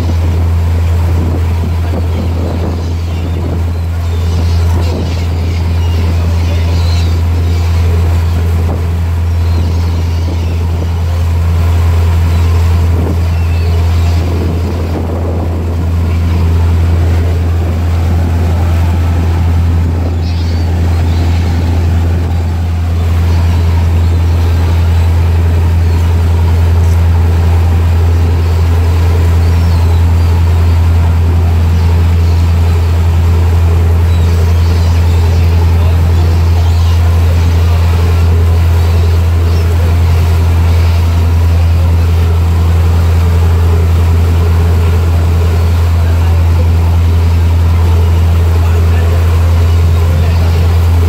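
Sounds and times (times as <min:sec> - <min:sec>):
boat engine droning: 0:00.0 - 0:51.0
rushing water of boat wake: 0:00.0 - 0:51.0.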